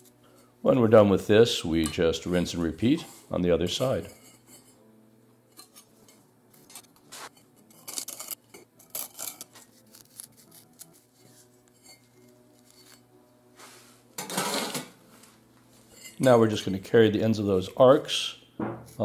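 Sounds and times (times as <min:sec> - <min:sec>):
dividers scratching firebrick: 0:06.7 - 0:13.1.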